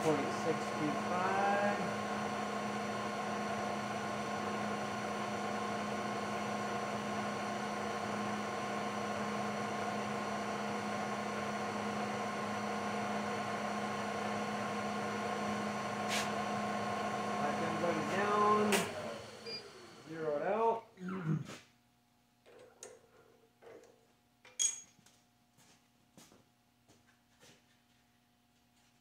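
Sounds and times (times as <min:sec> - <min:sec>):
milling machine motor hum: 0:00.0 - 0:20.7.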